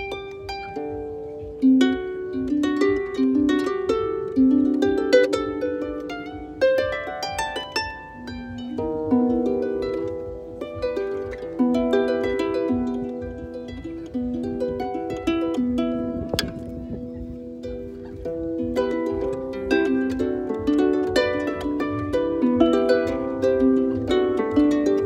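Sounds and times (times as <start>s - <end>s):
harp plucked by hand: 0.0s - 25.0s.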